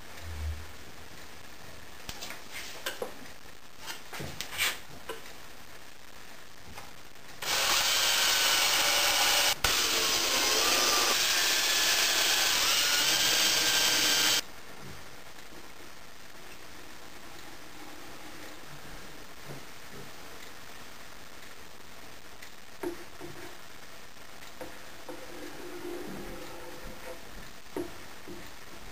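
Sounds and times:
cordless drill motor whine: 7.4 - 14.4.

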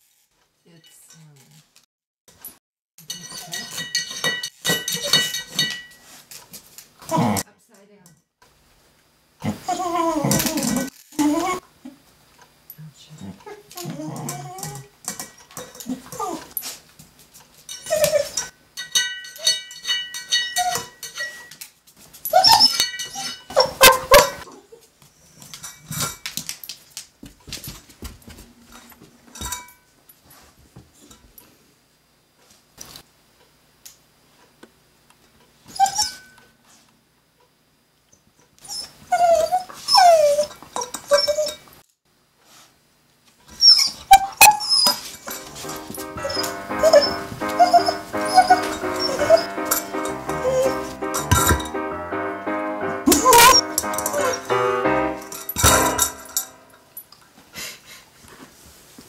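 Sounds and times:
metal pan clanking and scraping: 3.1 - 6.0, 17.7 - 21.5, 22.6 - 24.4, 45.0 - 51.8, 55.2 - 56.7
dog whining: 9.4 - 11.7, 13.2 - 14.9, 15.8 - 16.8, 17.8 - 18.5, 20.4 - 21.4, 22.3 - 24.9, 35.7 - 36.3, 38.6 - 41.6, 43.5 - 51.7, 53.0 - 54.6.

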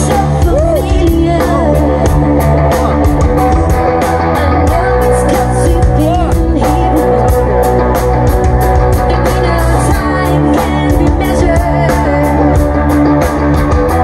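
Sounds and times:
electric guitar: 0.0 - 14.0
live rock band playing: 0.0 - 14.0.

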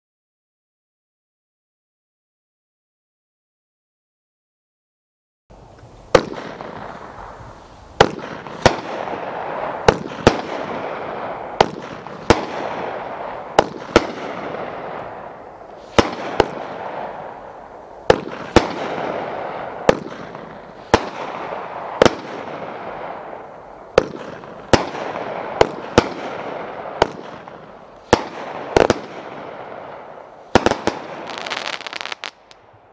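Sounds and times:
fireworks aerial bursts: 5.5 - 32.9
hiss after bursts: 6.8 - 8.7.

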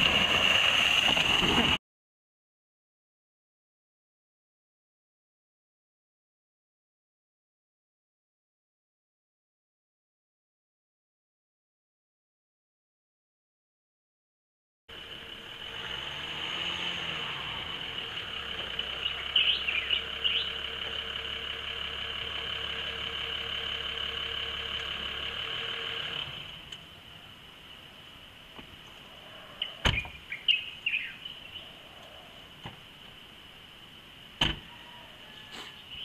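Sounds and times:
car engine running: 14.9 - 27.0
birds chirping: 18.0 - 21.2, 28.5 - 33.2, 34.6 - 36.0
car door shutting: 29.8 - 30.2, 34.4 - 34.7.

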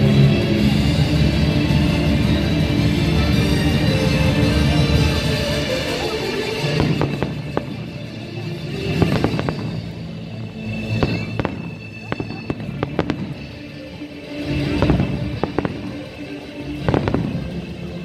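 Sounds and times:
music: 0.0 - 18.0
fireworks bursting: 5.8 - 18.0.

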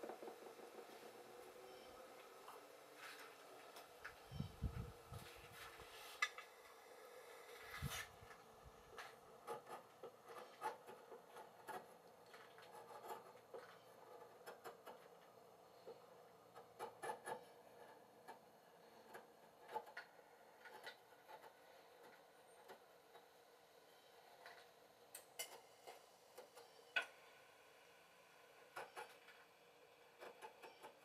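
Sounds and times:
faint steady hum: 0.0 - 31.0.

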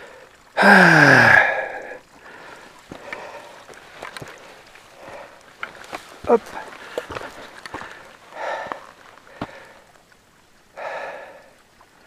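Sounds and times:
person sighing breathily: 0.0 - 3.6
faint footsteps on trail: 0.3 - 12.0.

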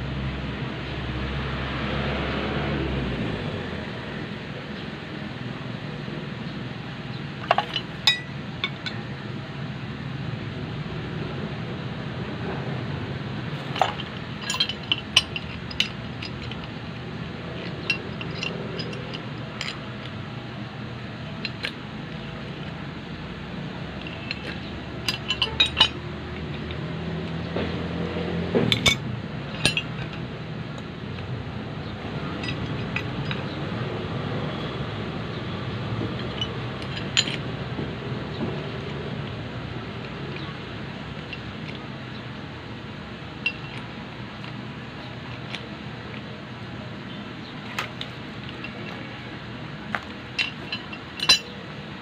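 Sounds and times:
steady background noise: 0.0 - 52.0
metal pipe fittings clinking: 7.4 - 9.1, 13.6 - 20.1, 21.4 - 21.8, 24.0 - 26.8, 28.6 - 30.2, 32.2 - 33.6, 36.2 - 37.4, 40.0 - 42.2, 43.4 - 44.6, 49.9 - 51.7.

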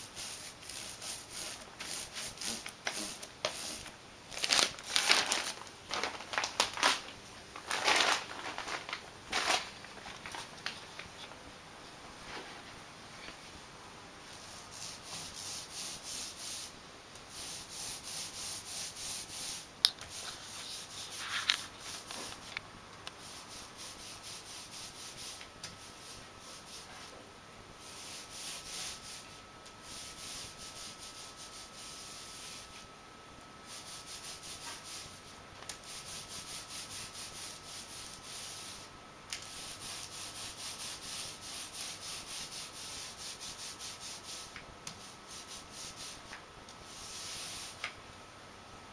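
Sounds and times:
paint roller rubbing on plastic: 0.0 - 6.4, 17.3 - 22.5.

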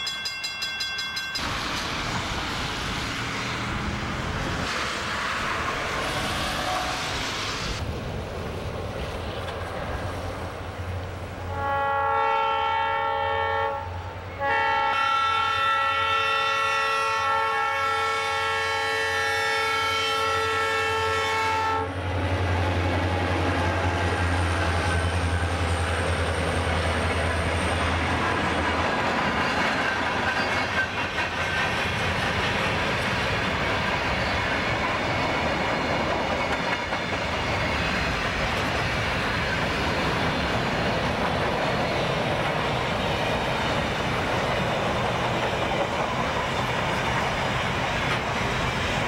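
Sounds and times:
locomotive air horn blasts: 6.4 - 7.2, 11.5 - 22.0
wheels clicking over rail joints: 24.6 - 49.0.

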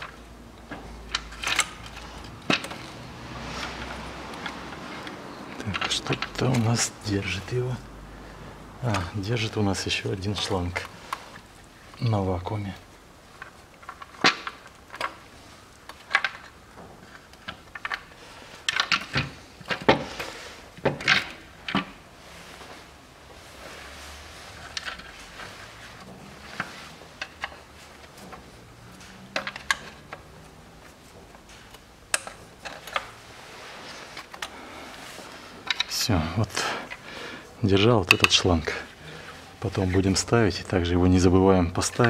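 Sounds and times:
plastic parts clicking and rattling: 0.0 - 3.0, 3.6 - 6.9, 13.3 - 22.0, 24.6 - 33.2, 33.8 - 37.1.

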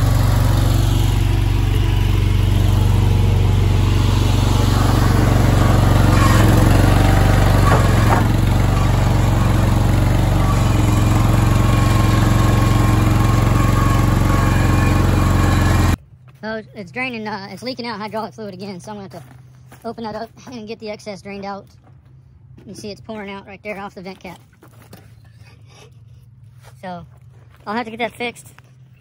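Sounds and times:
small gasoline engine running: 0.0 - 16.0.

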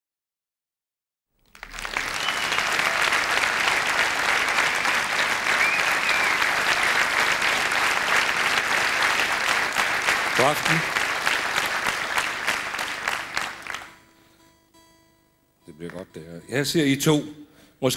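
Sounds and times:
audience applauding: 1.4 - 14.0.

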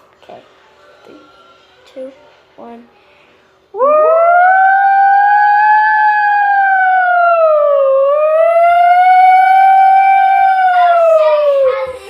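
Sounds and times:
girl imitating a siren: 3.8 - 12.0.

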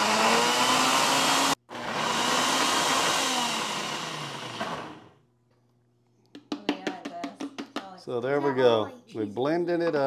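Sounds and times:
blender motor running: 0.0 - 5.2.

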